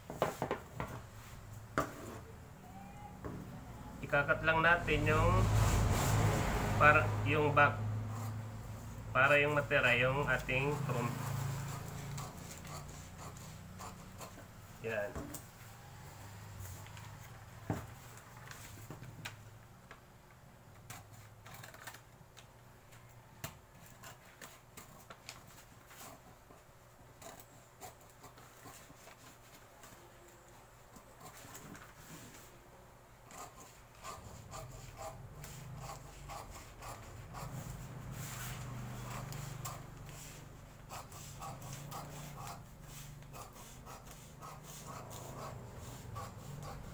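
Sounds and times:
scissors cutting paper: 0:09.5 - 0:14.5, 0:20.8 - 0:22.2, 0:27.2 - 0:30.0, 0:33.2 - 0:46.9
paper rustling: 0:18.0 - 0:19.2
scissors snipping paper: 0:20.8 - 0:22.1, 0:40.9 - 0:46.9.

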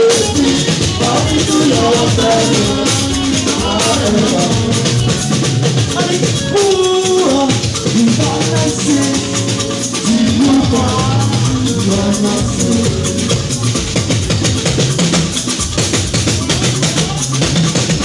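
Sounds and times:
man singing into a microphone: 0:00.0 - 0:13.6
music with shaker and drums: 0:00.0 - 0:18.0.

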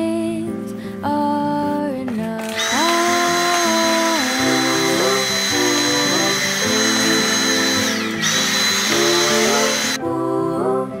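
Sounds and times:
background music: 0:00.0 - 0:11.0
handheld vacuum cleaner whine: 0:02.4 - 0:10.0.

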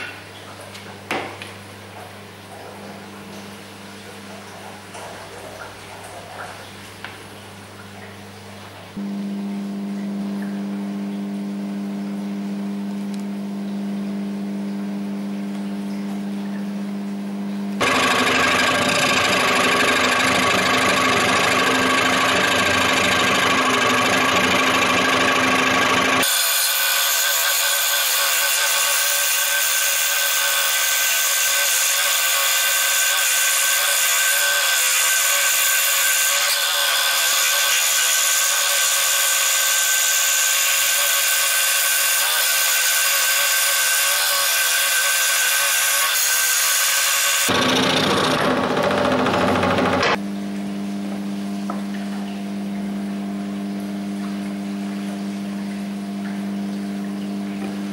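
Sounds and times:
low hum: 0:08.0 - 0:26.2
scroll saw cutting wood: 0:17.8 - 0:50.2.

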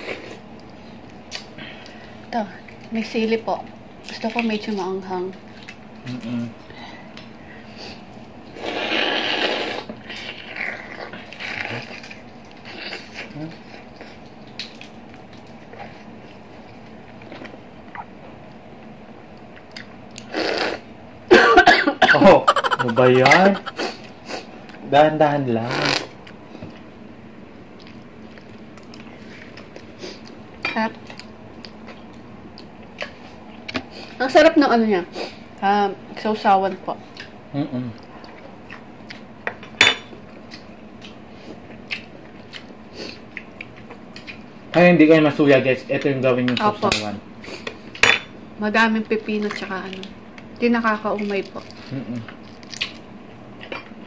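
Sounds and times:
low background hum: 0:00.0 - 0:54.0
faint chewing: 0:27.8 - 0:30.4, 0:51.2 - 0:53.8
chewing and biting: 0:51.2 - 0:53.8.

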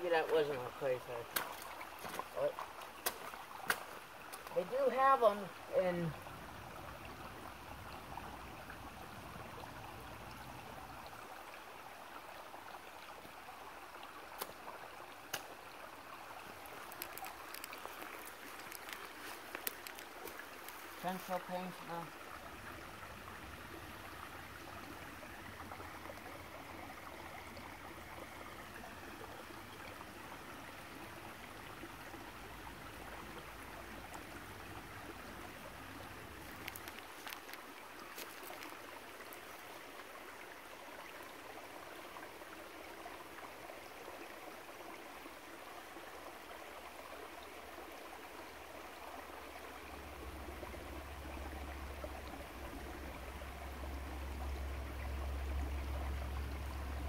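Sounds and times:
creek water running over rocks: 0:00.0 - 0:57.0.

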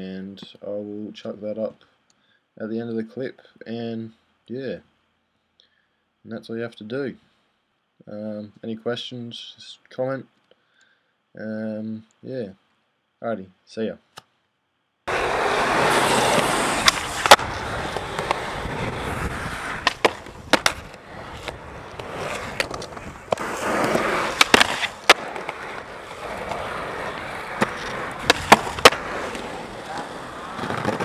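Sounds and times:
skateboard clacks: 0:15.1 - 0:31.0
skateboard wheels rolling on concrete: 0:15.1 - 0:31.0.

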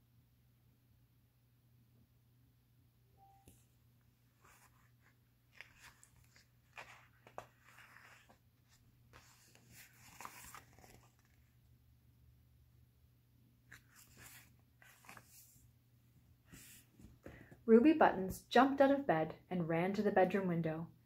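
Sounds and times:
book pages turning: 0:04.3 - 0:11.6, 0:13.7 - 0:15.7.

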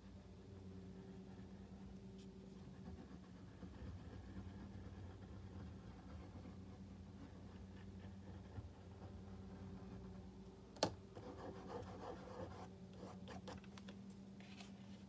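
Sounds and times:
steady low hum: 0:00.0 - 0:15.0
oil pastel scratching on paper: 0:00.9 - 0:10.4, 0:11.2 - 0:13.6.

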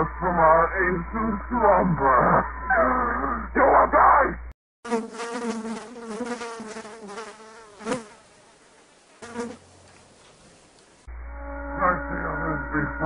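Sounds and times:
wavering buzzing drone: 0:00.0 - 0:03.6, 0:11.1 - 0:13.0.

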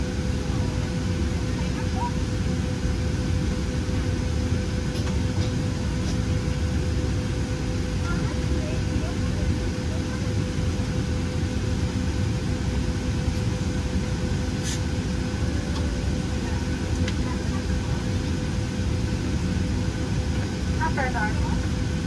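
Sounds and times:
constant cabin hum: 0:00.0 - 0:22.0
jet engines idling rumble: 0:00.0 - 0:22.0.

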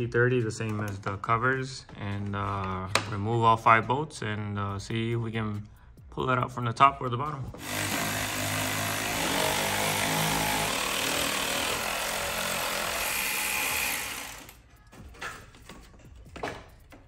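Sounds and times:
cordless power tool running: 0:07.6 - 0:14.6.

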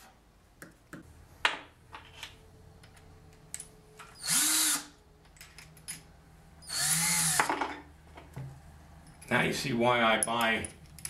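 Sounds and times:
cordless drill whirring: 0:04.2 - 0:05.0, 0:06.6 - 0:07.4.

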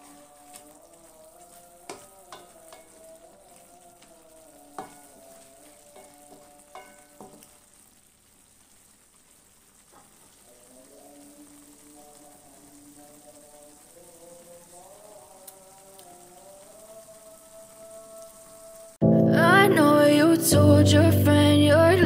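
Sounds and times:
spatula scraping metal wok: 0:00.0 - 0:07.5
sauce sizzling: 0:00.0 - 0:22.0
soft background music: 0:19.0 - 0:22.0.

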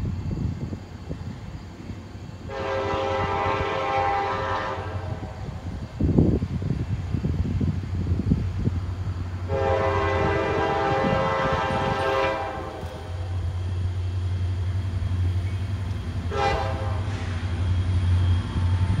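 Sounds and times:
low locomotive rumble: 0:00.0 - 0:19.0
locomotive air horn blasts: 0:02.5 - 0:05.4, 0:09.5 - 0:13.3, 0:16.3 - 0:17.4.

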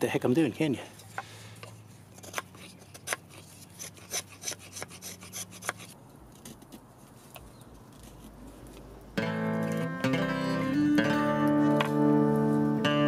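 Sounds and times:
knife scraping wood: 0:01.6 - 0:08.9.

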